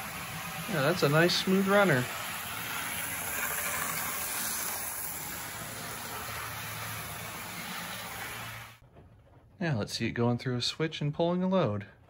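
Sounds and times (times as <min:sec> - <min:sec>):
model train motor whirring: 0:00.0 - 0:08.8.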